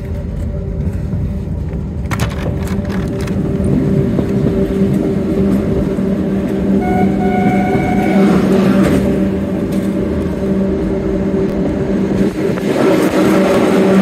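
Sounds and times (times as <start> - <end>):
train wheels rumbling on rail: 0.0 - 14.0
high-pitched squeal: 6.6 - 11.0.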